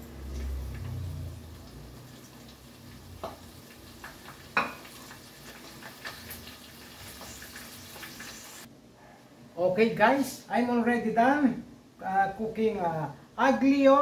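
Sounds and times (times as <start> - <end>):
tempura frying in oil: 0.0 - 8.7
utensil tapping a pan: 3.2 - 5.0.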